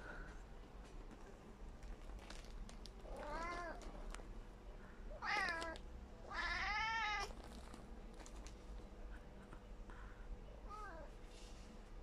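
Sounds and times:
cat meowing: 0:05.2 - 0:07.4.

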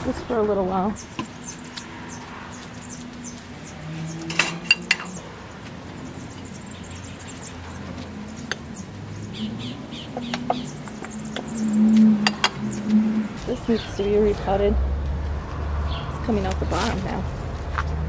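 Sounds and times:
flower pots clinking and knocking: 0:04.1 - 0:06.6, 0:10.1 - 0:13.6.

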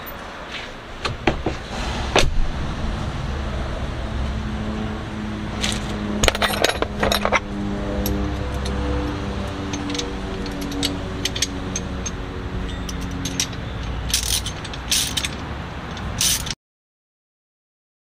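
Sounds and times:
metal parts and tools clinking: 0:05.6 - 0:16.6.

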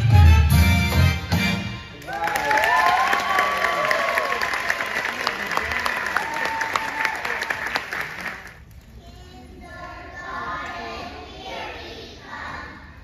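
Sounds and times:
audience applauding: 0:01.9 - 0:08.7.

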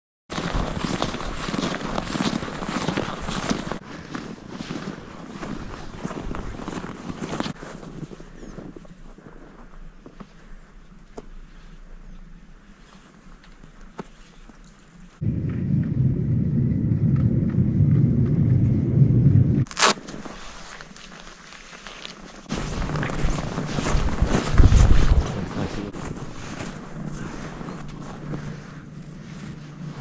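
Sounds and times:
footsteps crunching on snow: 0:00.3 - 0:15.3, 0:19.7 - 0:30.0
wind buffeting microphone: 0:15.2 - 0:19.7, 0:22.5 - 0:28.9.

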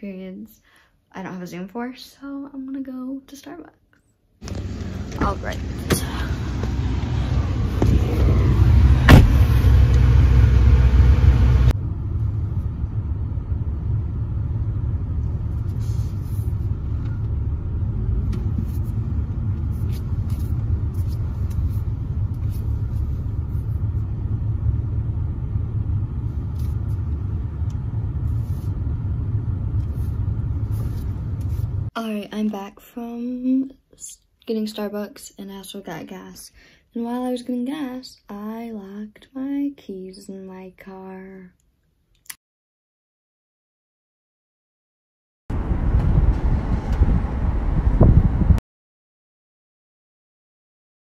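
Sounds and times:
car running from inside cabin: 0:04.4 - 0:31.9, 0:45.5 - 0:48.6
wind buffeting microphone: 0:45.5 - 0:48.6.

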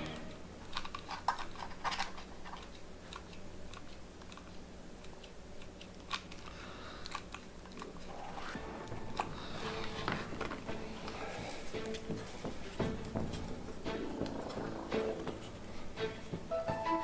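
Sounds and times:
faint steady hum: 0:00.0 - 0:17.0
small clicks and crackles: 0:00.6 - 0:08.5.

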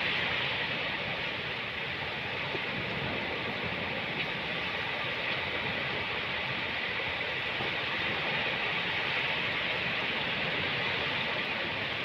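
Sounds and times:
ocean surf washing onto beach: 0:00.0 - 0:12.0.

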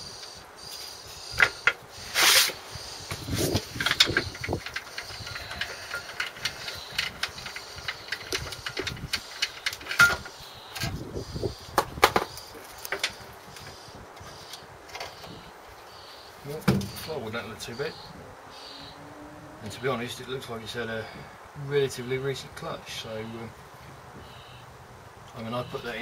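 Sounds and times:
spanner clicking on bolts: 0:03.7 - 0:10.9.

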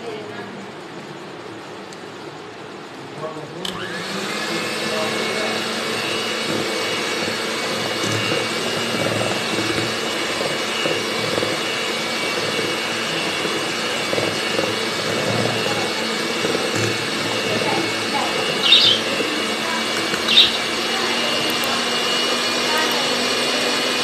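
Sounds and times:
electric hand mixer whisking batter: 0:03.8 - 0:24.0.

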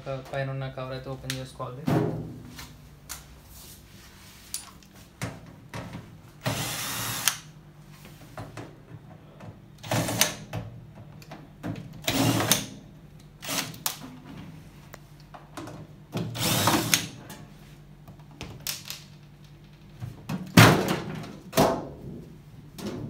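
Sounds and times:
cordless drill whirring: 0:06.4 - 0:07.4, 0:16.4 - 0:17.1.

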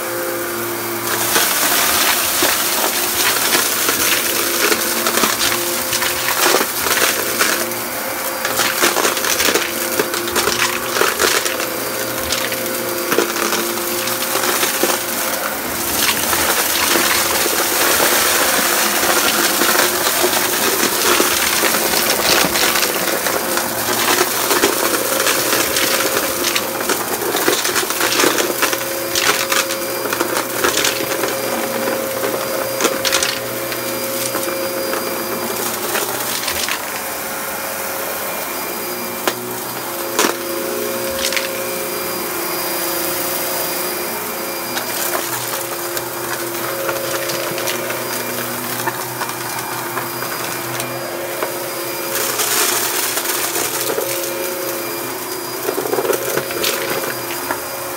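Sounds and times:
vacuum cleaner motor: 0:00.0 - 0:57.9
grit rattling through vacuum head: 0:01.0 - 0:37.0.

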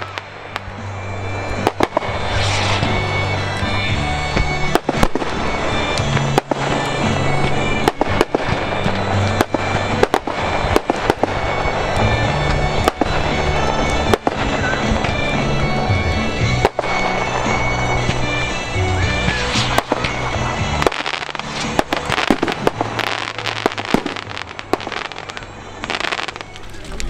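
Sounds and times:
fireworks bangs and crackle: 0:00.0 - 0:27.0
music playing: 0:00.0 - 0:27.0.

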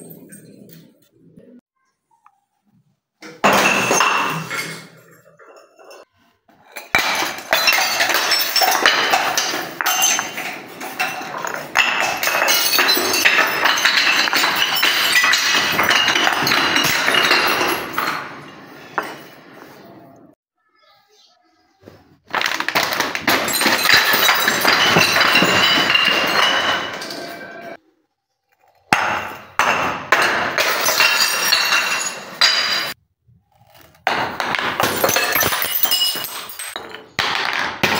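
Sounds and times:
glass bottle crashing on stone: 0:03.2 - 0:19.7, 0:22.3 - 0:27.8, 0:28.9 - 0:33.0, 0:34.0 - 0:37.9
glass breaking: 0:03.3 - 0:06.0, 0:06.6 - 0:19.4, 0:22.3 - 0:27.8, 0:28.8 - 0:33.0, 0:34.0 - 0:37.9
glass shards clinking: 0:03.4 - 0:19.7, 0:22.3 - 0:27.8, 0:28.9 - 0:33.0, 0:34.4 - 0:37.9.

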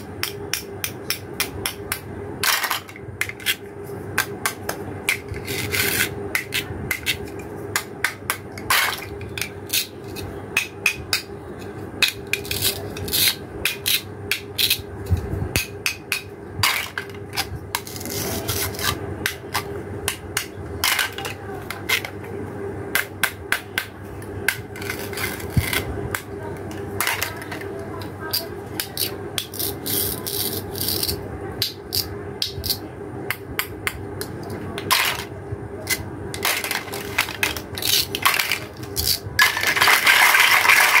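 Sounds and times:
plastic toy pieces clicking: 0:35.9 - 0:41.0.

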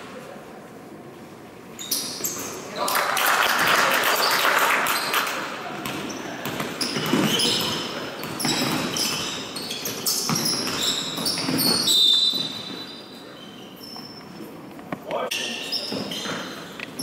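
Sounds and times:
sneakers squeaking: 0:01.6 - 0:02.9, 0:04.2 - 0:17.0
basketball bouncing on court: 0:05.8 - 0:12.7.

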